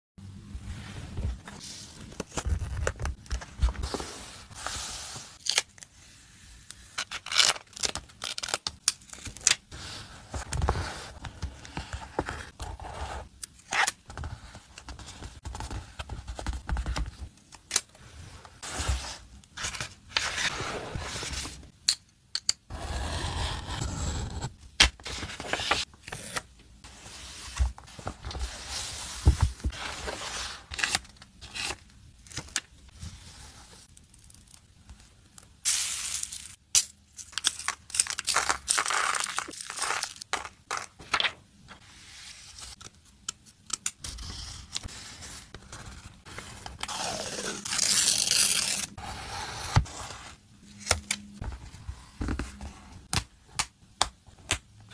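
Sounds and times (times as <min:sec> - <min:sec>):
pages flipping: 0:37.3 - 0:41.4.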